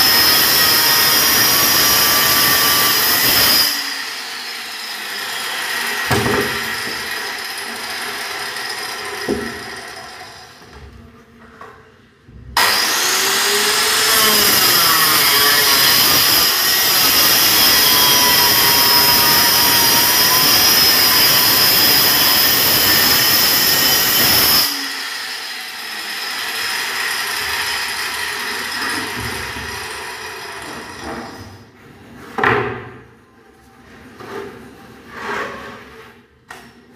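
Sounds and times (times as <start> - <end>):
circular saw cutting plywood: 0.0 - 10.6, 12.6 - 31.4.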